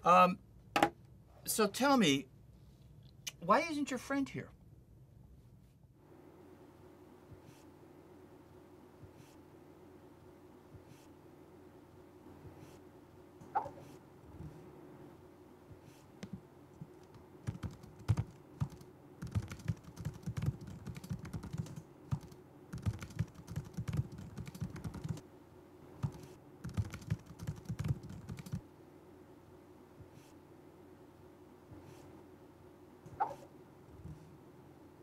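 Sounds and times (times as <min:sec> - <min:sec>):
laptop keyboard typing: 0:16.2 - 0:25.2, 0:26.0 - 0:28.6.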